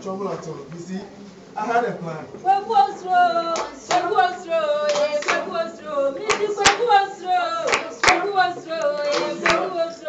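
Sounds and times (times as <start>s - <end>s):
voices singing: 2.4s - 10.0s
sharp handclaps: 3.6s - 4.2s, 4.9s - 5.6s, 6.2s - 7.0s, 7.6s - 9.7s.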